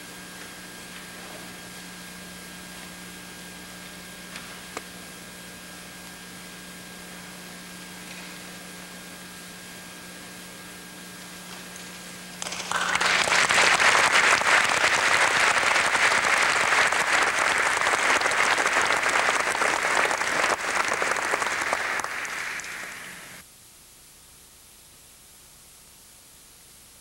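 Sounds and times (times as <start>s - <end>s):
large audience applauding: 12.4s - 23.4s.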